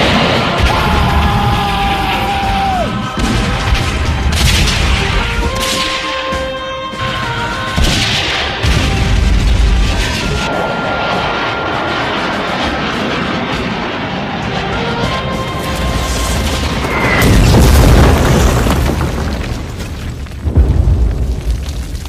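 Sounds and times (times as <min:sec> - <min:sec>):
explosion booms: 0:00.0 - 0:05.8, 0:15.7 - 0:22.0
music: 0:00.0 - 0:10.5, 0:14.2 - 0:17.6
gunfire: 0:03.1 - 0:10.5.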